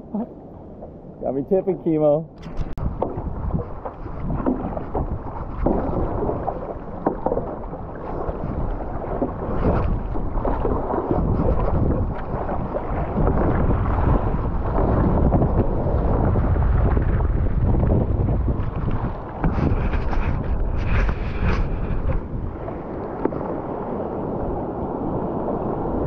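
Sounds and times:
water rushing and splashing: 0:00.0 - 0:26.0
wind buffeting microphone: 0:00.0 - 0:26.0.

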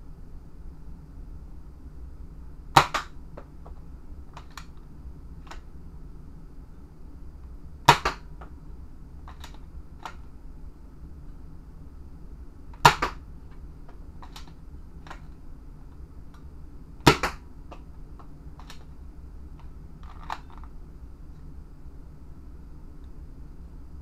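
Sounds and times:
toy blaster firing snap: 0:02.8 - 0:03.1, 0:07.9 - 0:08.2, 0:12.8 - 0:13.2, 0:17.0 - 0:17.4.

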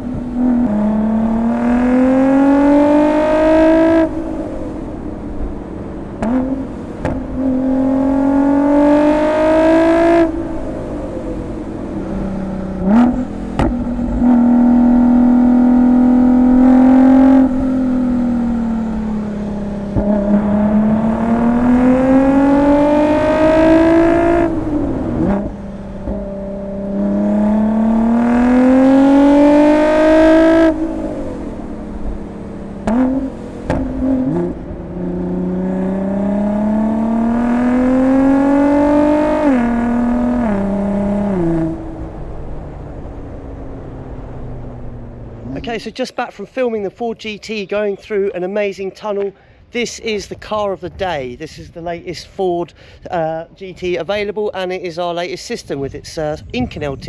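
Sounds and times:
car engine revving hard: 0:00.0 - 0:45.8
exhaust pops and cracks: 0:07.0 - 0:07.3, 0:13.6 - 0:14.2, 0:32.8 - 0:34.1.

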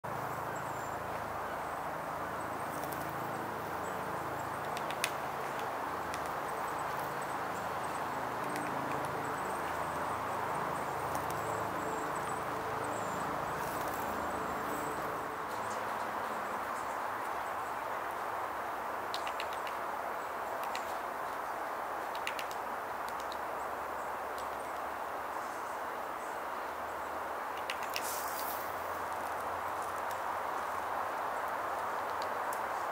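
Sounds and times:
steady rushing background noise: 0:00.1 - 0:32.9
bird tapping on bark: 0:04.6 - 0:07.2, 0:19.1 - 0:19.8, 0:22.0 - 0:23.4, 0:27.6 - 0:29.2.

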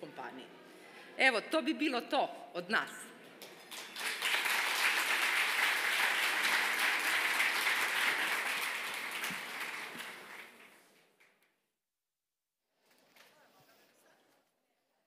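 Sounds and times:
audience applauding: 0:03.6 - 0:10.9.

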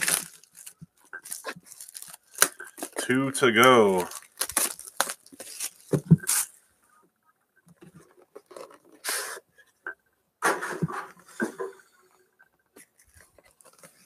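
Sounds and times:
packaging ripping: 0:00.0 - 0:06.6.

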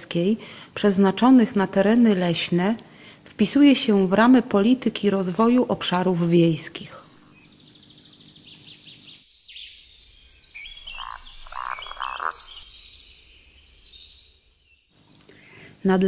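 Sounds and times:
birds chirping: 0:07.1 - 0:14.9
frogs croaking: 0:09.3 - 0:14.7.

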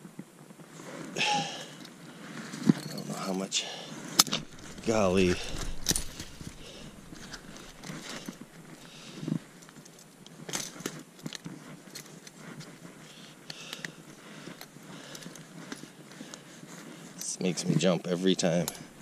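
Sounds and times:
metal trap clinks and rattles: 0:02.6 - 0:03.3, 0:04.3 - 0:12.3
rustling of dry reeds and snow: 0:04.3 - 0:19.0.

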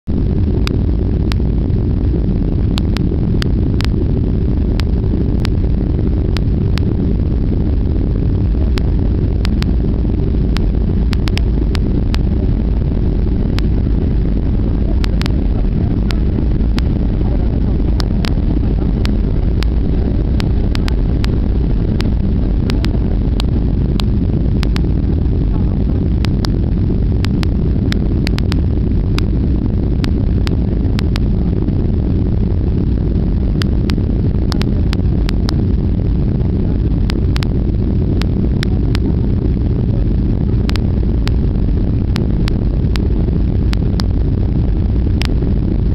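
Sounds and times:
airliner cabin engine rumble: 0:00.0 - 0:45.9
small clicks: 0:02.7 - 0:04.0, 0:10.5 - 0:12.2, 0:26.2 - 0:29.3, 0:36.9 - 0:37.6, 0:40.6 - 0:41.4, 0:45.1 - 0:45.4.

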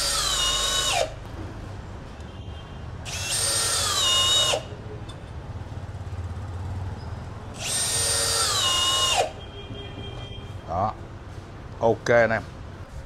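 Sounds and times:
drill driving screws into wood: 0:00.0 - 0:01.2, 0:03.1 - 0:04.7, 0:07.6 - 0:09.4.

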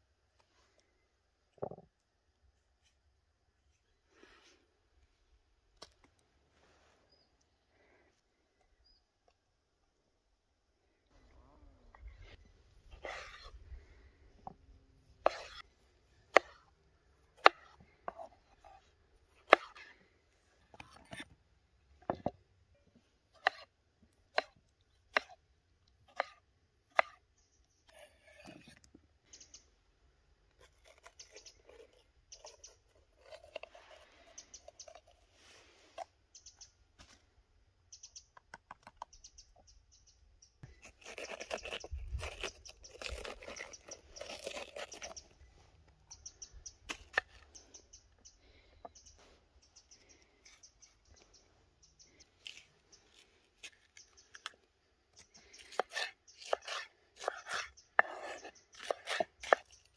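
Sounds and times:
knife cutting vegetables on board: 0:13.0 - 0:13.6, 0:15.2 - 0:15.6, 0:27.0 - 0:27.2, 0:55.6 - 0:59.7
birds chirping: 0:29.2 - 0:29.9, 0:30.9 - 0:35.2, 0:36.3 - 0:36.9, 0:37.8 - 0:59.9.

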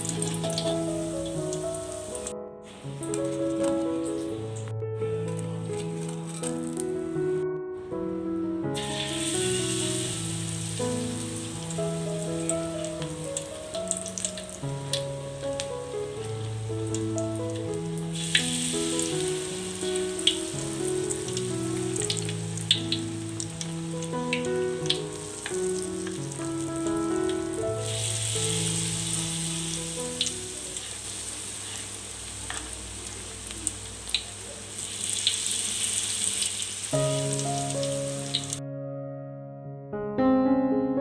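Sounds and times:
batter frying in hot oil: 0:00.0 - 0:04.7, 0:08.8 - 0:38.6
soft background music: 0:00.0 - 0:30.8, 0:37.0 - 0:40.3.

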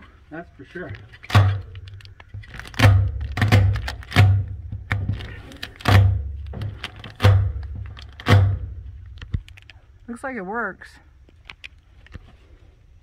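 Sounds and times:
hand banging metal roof: 0:01.3 - 0:09.0.

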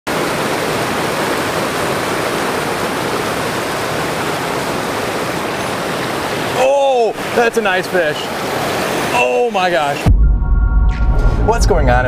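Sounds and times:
running water rushing: 0:00.1 - 0:10.1.

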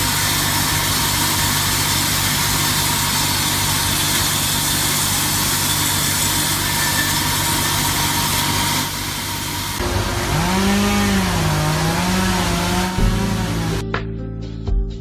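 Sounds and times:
circular saw cutting log: 0:00.0 - 0:13.8
background music: 0:11.9 - 0:15.0.

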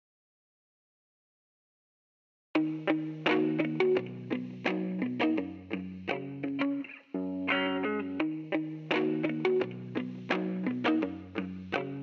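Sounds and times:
plucked guitar-like melody: 0:02.6 - 0:12.0.

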